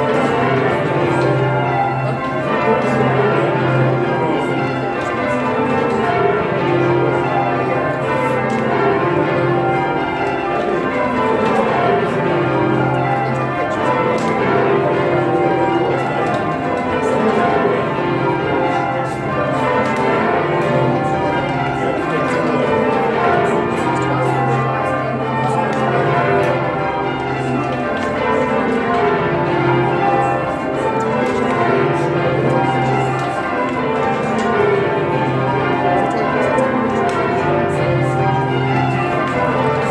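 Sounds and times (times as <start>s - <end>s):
church bells ringing changes: 0.0s - 39.9s.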